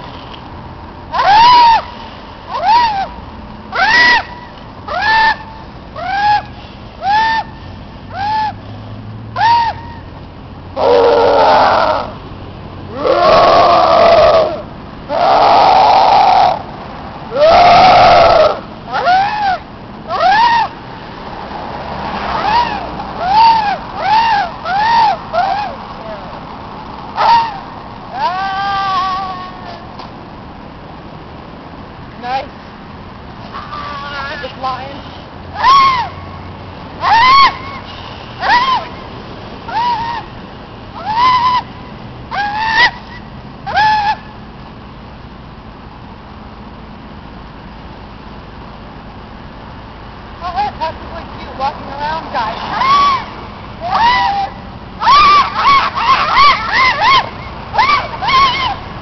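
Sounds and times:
people yelling drawn-out cries: 1.1 - 1.8, 10.8 - 12.2, 12.9 - 16.7, 17.3 - 20.8, 22.1 - 26.4, 27.2 - 30.0, 33.4 - 34.8, 35.6 - 36.3, 37.0 - 39.0, 39.7 - 40.3, 52.1 - 58.9
people squawking like caws: 1.1 - 1.9, 2.5 - 8.6, 10.8 - 12.2, 12.9 - 16.6, 17.3 - 20.8, 22.2 - 26.2, 27.2 - 29.8, 33.5 - 34.6, 35.6 - 36.2, 37.0 - 38.9, 41.0 - 41.7, 42.3 - 43.0, 52.3 - 58.9.

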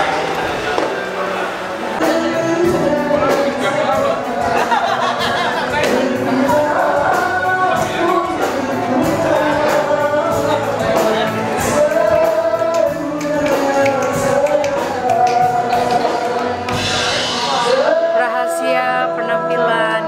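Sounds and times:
music with singing: 0.0 - 20.0.

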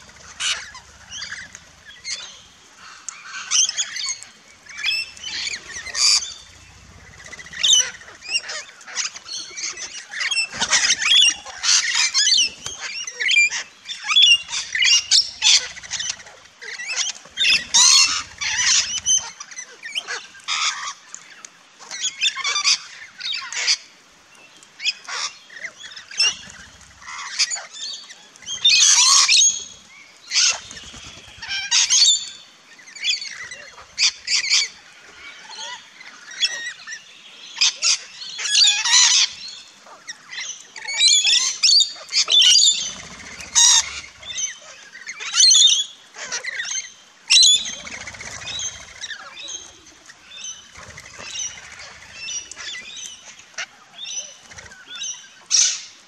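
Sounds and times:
wingbeats fluttering: 0.0 - 20.5, 25.5 - 32.2, 41.7 - 45.3, 47.3 - 55.4
parrots squawking: 0.0 - 20.9, 37.6 - 53.0.

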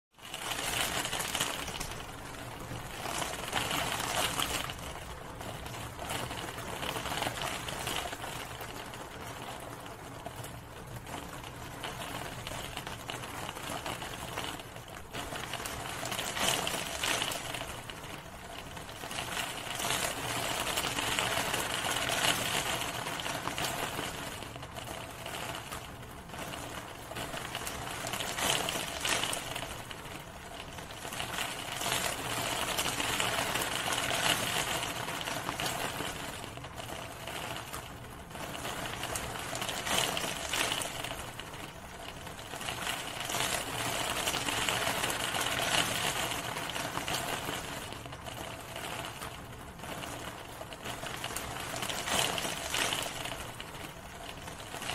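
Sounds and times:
rain falling: 0.1 - 54.9.

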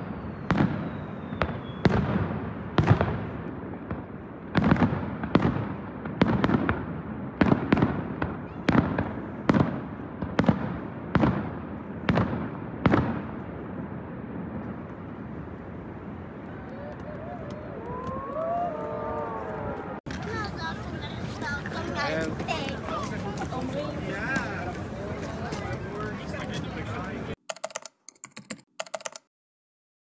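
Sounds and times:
fireworks bangs echoing: 0.0 - 16.7.

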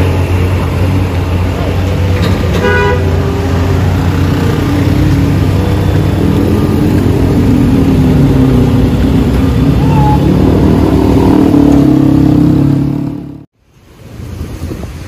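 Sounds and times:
traffic engines droning: 0.0 - 15.0
vehicle horn toot: 2.5 - 3.2.

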